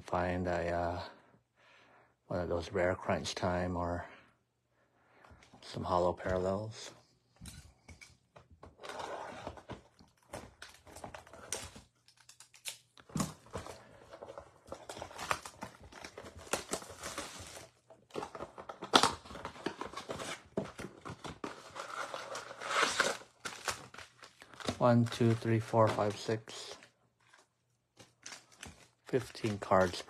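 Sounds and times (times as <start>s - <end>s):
cardboard tearing: 8.8s - 24.8s
plastic shrink wrap crinkling: 21.0s - 30.0s.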